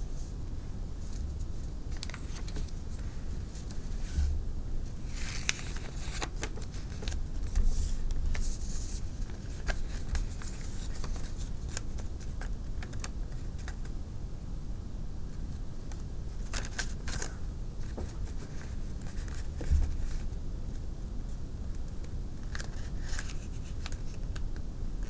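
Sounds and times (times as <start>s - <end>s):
low steady rumble: 0.0s - 25.0s
paper crinkling and creasing: 1.0s - 4.2s, 4.9s - 13.9s, 15.9s - 20.3s, 22.4s - 24.4s.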